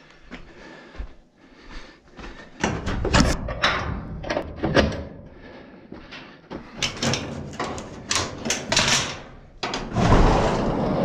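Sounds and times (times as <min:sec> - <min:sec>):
knocks and rattles on sheet metal: 0:02.6 - 0:05.2.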